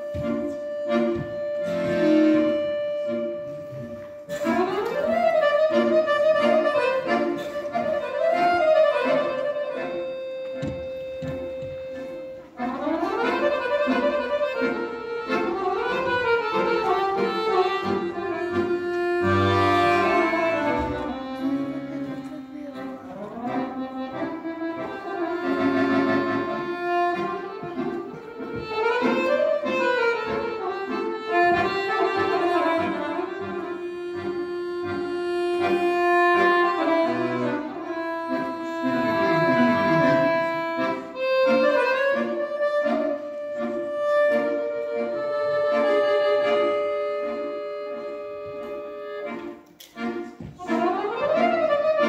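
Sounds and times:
accordion: 0:00.0 - 0:52.0.

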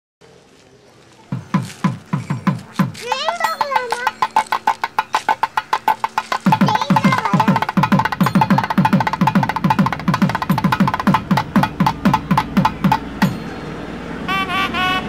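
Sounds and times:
fast drum strokes: 0:01.3 - 0:13.5
sharp high clicks: 0:02.2 - 0:13.4
reed wind instrument melody: 0:13.1 - 0:15.0.

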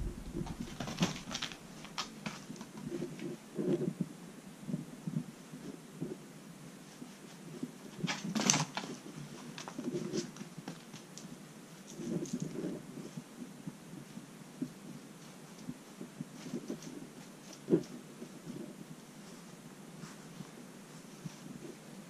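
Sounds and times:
kitten paws pattering and scuffling: 0:14.0 - 0:21.8.

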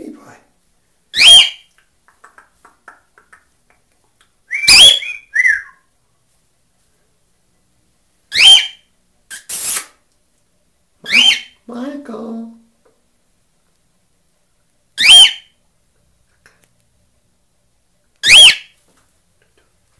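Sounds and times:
cockatiel whistled calls: 0:01.1 - 0:01.6, 0:04.5 - 0:05.8, 0:08.3 - 0:09.8, 0:11.0 - 0:11.6, 0:15.0 - 0:15.5, 0:18.2 - 0:18.8
harsh noisy bird burst: 0:08.4 - 0:10.0.

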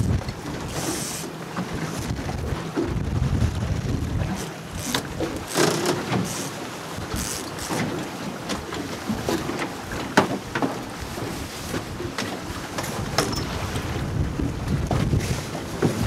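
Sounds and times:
wind buffeting microphone: 0:00.0 - 0:01.0, 0:01.6 - 0:05.5, 0:10.8 - 0:16.0
choppy sea washing: 0:00.0 - 0:16.0.

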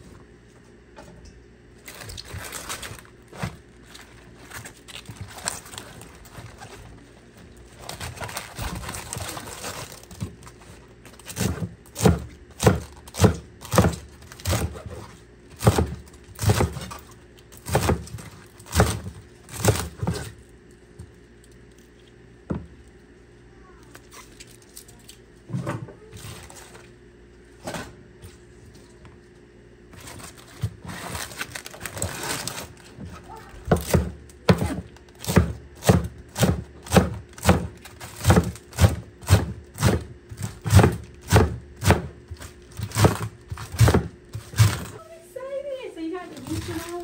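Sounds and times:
rustling and crinkling: 0:01.7 - 0:11.7, 0:23.8 - 0:35.3, 0:42.2 - 0:47.0
knife chopping on cutting board: 0:11.3 - 0:15.0, 0:15.6 - 0:16.9, 0:18.7 - 0:20.3, 0:33.7 - 0:44.9.

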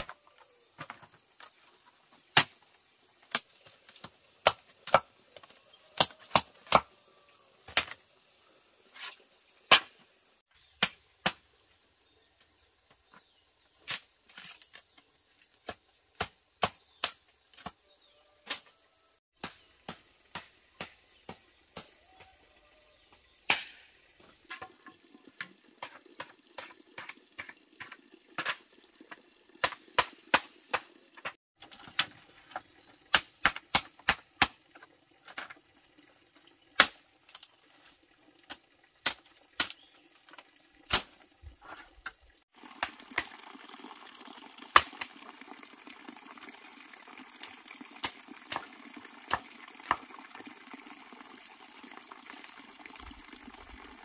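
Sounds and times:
insect drone: 0:00.0 - 0:31.4
machete chopping bamboo: 0:02.3 - 0:02.6, 0:03.3 - 0:05.2, 0:06.0 - 0:06.9, 0:07.7 - 0:08.0, 0:09.7 - 0:09.9, 0:10.6 - 0:11.4, 0:15.6 - 0:17.8, 0:23.4 - 0:23.9, 0:29.6 - 0:30.9, 0:33.1 - 0:34.6, 0:36.8 - 0:37.0, 0:39.0 - 0:39.9, 0:40.9 - 0:41.2.

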